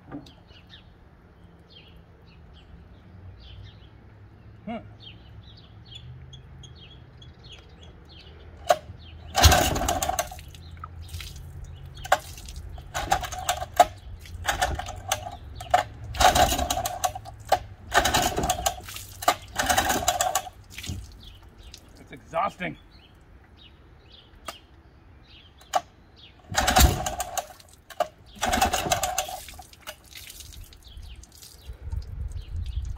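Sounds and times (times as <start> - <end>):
birds chirping: 0.0 - 32.9
outboard motor pull-start cranking: 8.7 - 10.8, 12.0 - 21.3, 26.5 - 30.0.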